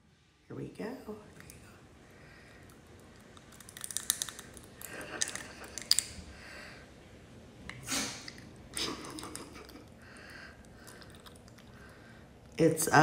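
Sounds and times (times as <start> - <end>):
dog licking and smacking lips: 10.7 - 11.8.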